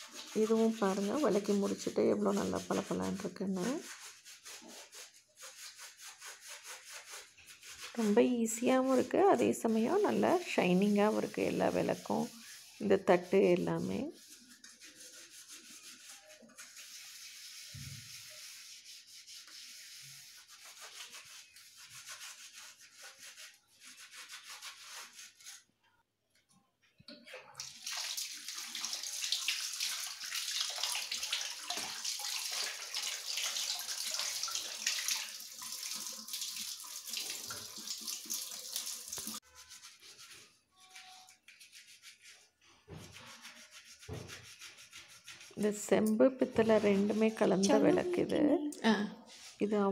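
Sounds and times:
scrubbing brass by hand: 0.0s - 25.7s, 33.9s - 48.3s
tap water running: 27.5s - 39.4s.

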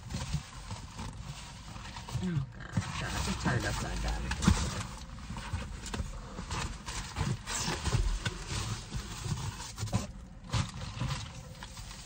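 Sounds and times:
cardboard box scraping: 0.0s - 12.0s
plastic wrapping rustling: 0.0s - 12.0s.

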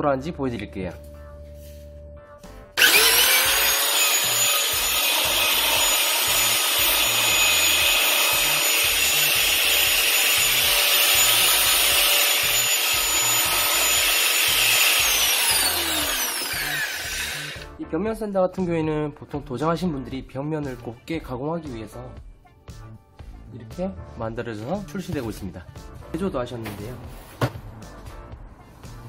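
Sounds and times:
electric sander whining: 2.8s - 17.7s.

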